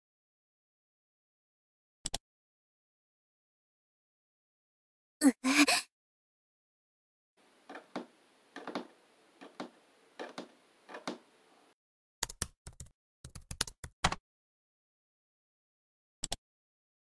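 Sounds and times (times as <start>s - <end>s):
keyboard typing: 12.2s - 14.2s.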